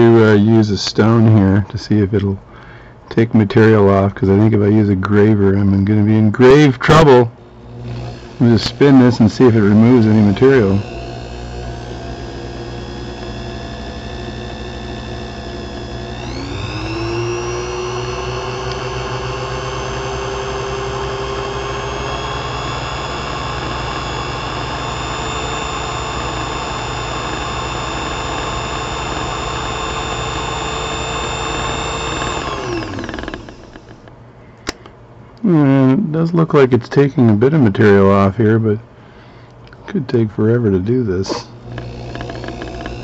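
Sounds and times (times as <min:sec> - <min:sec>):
lathe motor whining: 0:07.4 - 0:34.1, 0:41.3 - 0:43.0.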